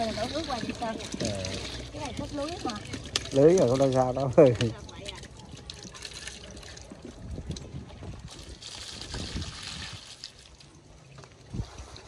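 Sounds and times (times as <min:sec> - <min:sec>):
small knocks and splashes: 0:00.0 - 0:12.0
water pouring into container: 0:00.0 - 0:12.0.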